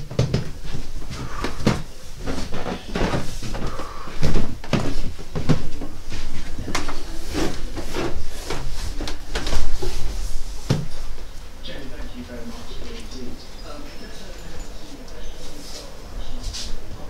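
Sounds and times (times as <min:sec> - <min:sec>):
irregular knocks and thumps: 0:00.0 - 0:07.0
steady low hum: 0:00.0 - 0:17.0.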